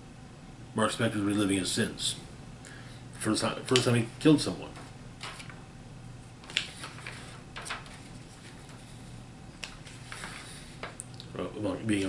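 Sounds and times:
faint low hum: 0:00.0 - 0:12.0
paper pages rustling: 0:04.7 - 0:05.6, 0:06.4 - 0:11.0.

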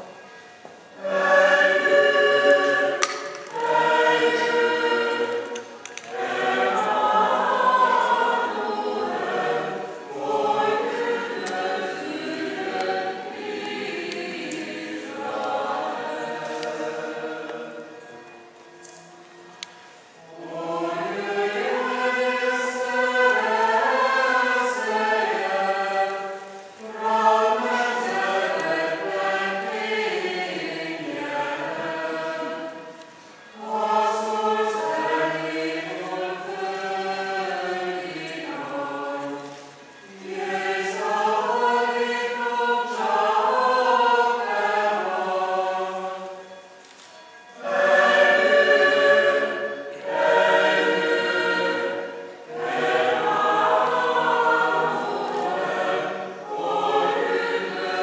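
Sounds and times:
choir singing: 0:00.0 - 0:58.0.

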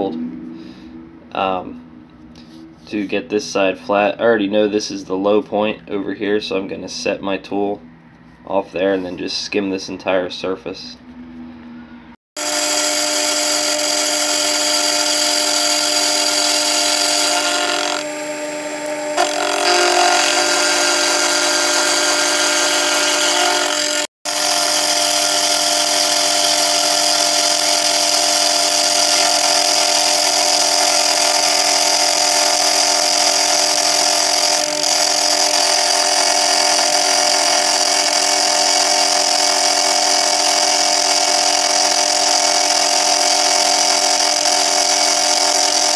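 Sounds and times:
milling machine motor whine: 0:12.4 - 0:45.9.

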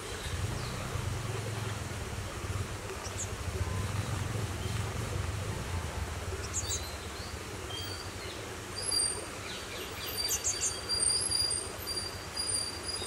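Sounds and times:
steady low rumble: 0:00.0 - 0:07.6.

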